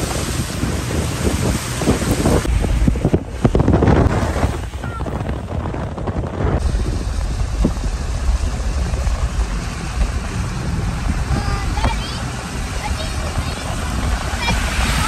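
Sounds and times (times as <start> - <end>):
tyres hissing on wet road: 0.0 - 3.5, 6.6 - 15.0
wind rumble on microphone: 0.0 - 15.0.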